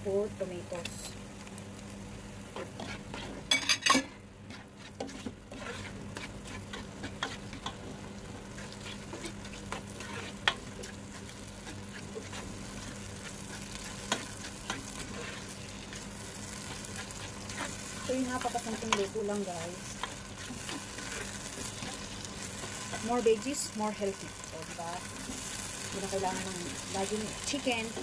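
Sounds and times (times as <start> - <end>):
tomatoes sizzling in oil: 0.0 - 28.0
spatula scraping pot: 2.6 - 7.8, 8.5 - 23.4.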